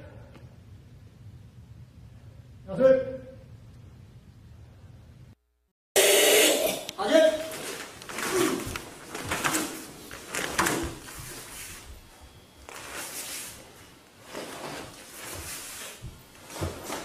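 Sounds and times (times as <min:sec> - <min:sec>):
uniforms swishing and snapping: 0:07.4 - 0:11.9, 0:12.6 - 0:17.0.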